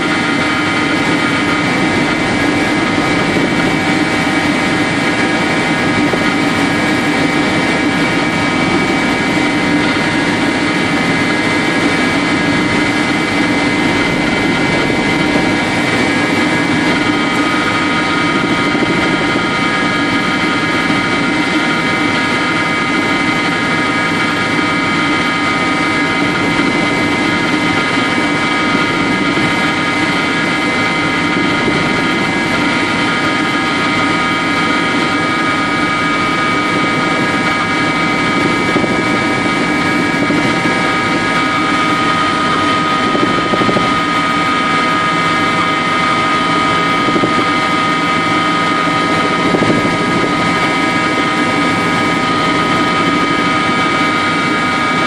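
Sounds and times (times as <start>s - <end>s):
helicopter rotor and engine drone: 0.0s - 55.0s
high whine: 0.0s - 55.0s.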